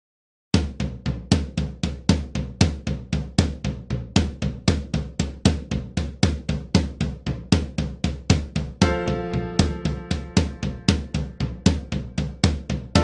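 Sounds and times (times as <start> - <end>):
drum kit beat: 0.6 - 13.0.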